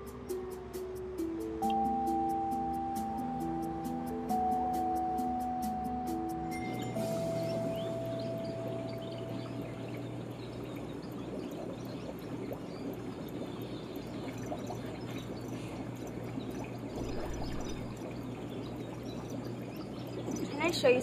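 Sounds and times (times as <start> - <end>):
running water trickling: 6.5 - 21.0
low hum: 6.6 - 20.5.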